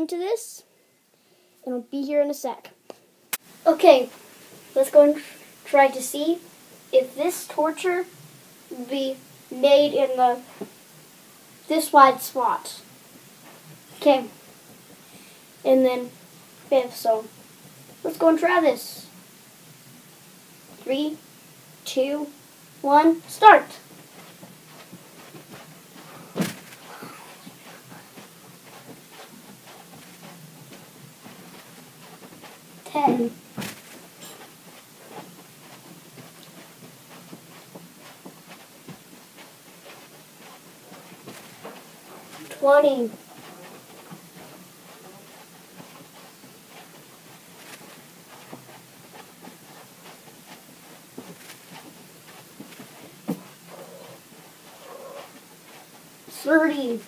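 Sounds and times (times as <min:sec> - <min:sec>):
soft footfalls: 0:10.4 - 0:11.5, 0:22.5 - 0:57.0
clothing rustle: 0:22.8 - 0:57.0
loud thump: 0:26.3 - 0:26.7.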